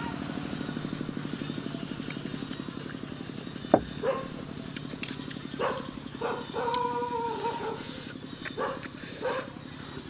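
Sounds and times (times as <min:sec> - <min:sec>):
dog whining: 0:05.6 - 0:07.9.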